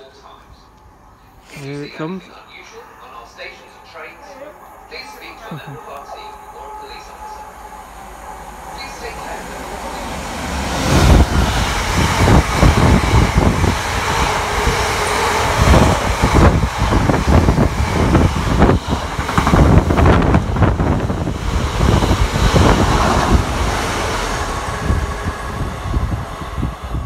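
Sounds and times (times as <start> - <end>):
diesel locomotive passing: 0.0 - 27.0
train wagons rumbling and clattering: 4.8 - 27.0
wind gusts on microphone: 9.8 - 27.0.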